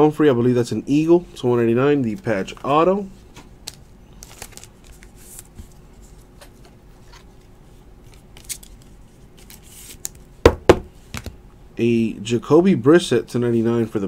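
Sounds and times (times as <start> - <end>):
trading cards and sleeves rustling: 2.0 - 10.2.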